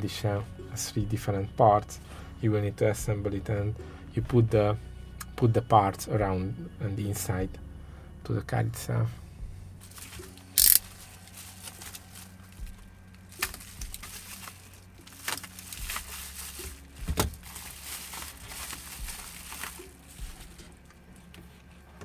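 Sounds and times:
bubble wrap crinkling: 9.8 - 21.7.

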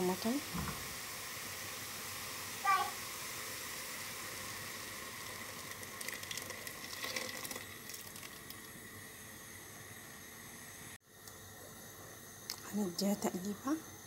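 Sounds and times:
pot sizzling and bubbling: 0.0 - 14.0
juice pouring: 3.4 - 9.2.

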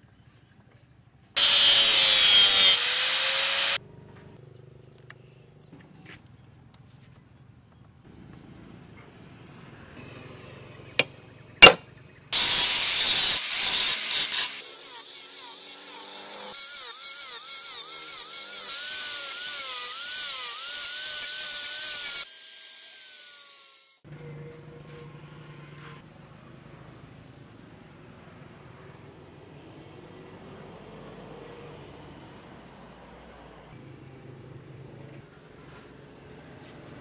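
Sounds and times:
angle grinder grinding steel: 1.4 - 3.8, 12.4 - 24.0
hammer striking steel punch: 11.0 - 11.9.

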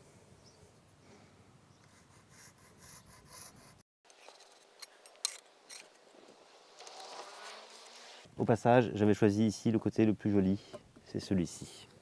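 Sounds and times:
pencil scratching: 1.8 - 3.8.

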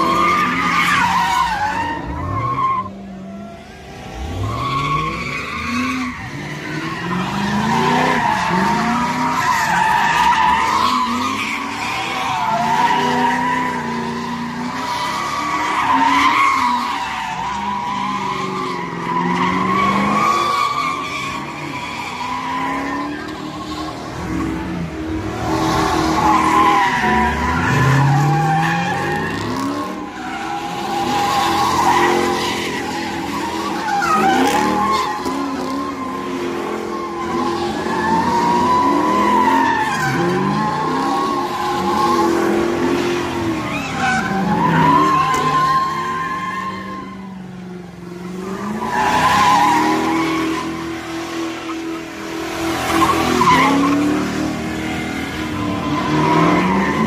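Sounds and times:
car engines revving: 0.0 - 57.0
tyres screeching: 4.2 - 47.4.

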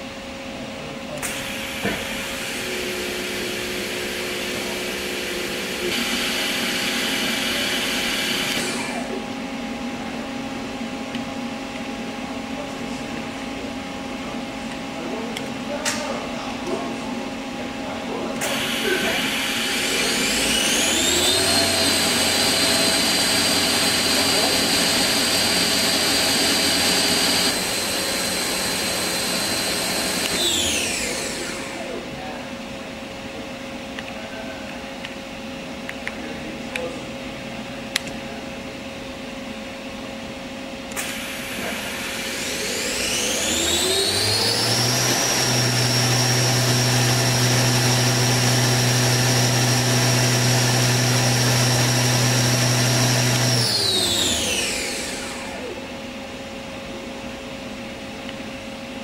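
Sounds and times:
machine spindle whining: 1.2 - 10.0, 18.3 - 32.2, 40.9 - 56.2.

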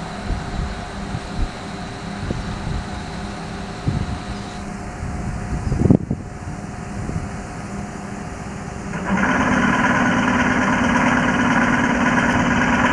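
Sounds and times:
train machinery hum: 0.0 - 12.9.

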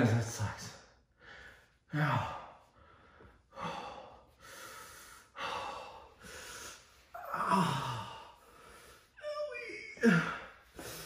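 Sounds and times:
man breathing hard in pain: 1.1 - 9.2
man groaning: 7.2 - 8.3, 9.3 - 10.6.

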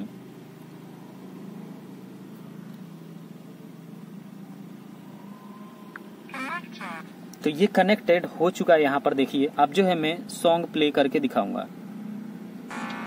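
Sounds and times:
loudspeaker hum and hiss: 0.0 - 0.8, 2.2 - 11.8.

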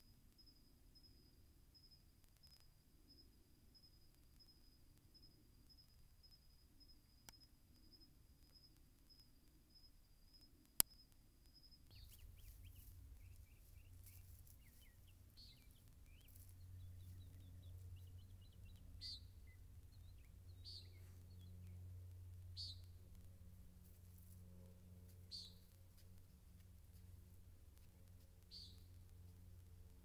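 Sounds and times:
birds chirping: 10.9 - 23.2, 25.2 - 25.8, 28.4 - 29.1
steady low rumble: 11.6 - 30.0
sharp bird calls: 11.8 - 21.8.

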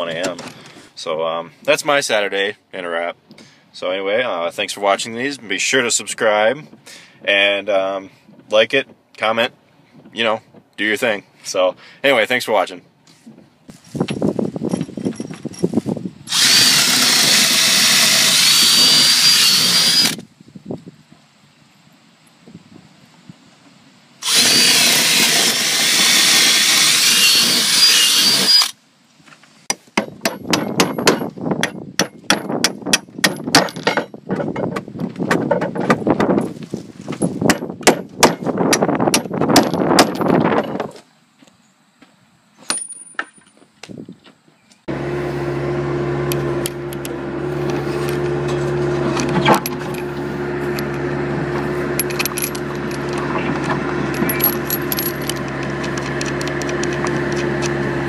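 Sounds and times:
electric drill boring into wood: 16.3 - 20.2, 24.2 - 28.8
clicking and rattling: 52.0 - 57.7.

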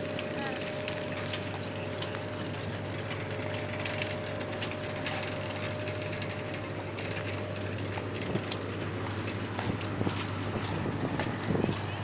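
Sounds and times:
clicking and rattling: 0.0 - 12.0
low mechanical hum: 0.0 - 12.0.

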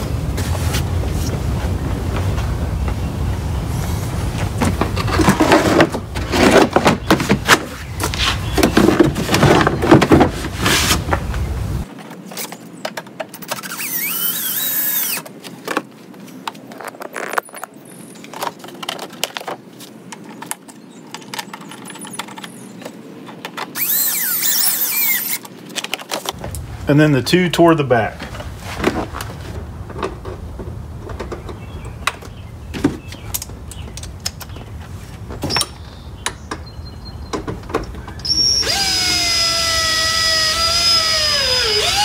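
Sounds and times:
high squeaks: 13.4 - 15.2, 23.8 - 25.4, 38.2 - 42.0.

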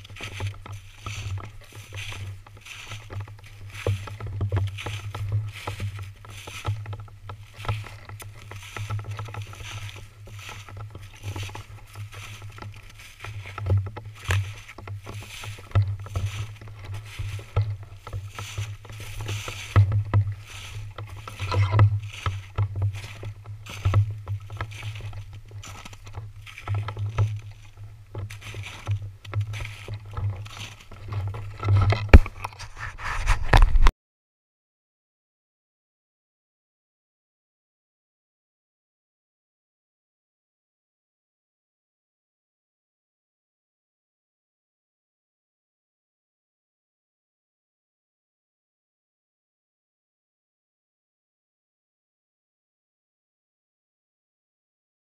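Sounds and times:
footsteps crunching through snow: 0.0 - 33.9.

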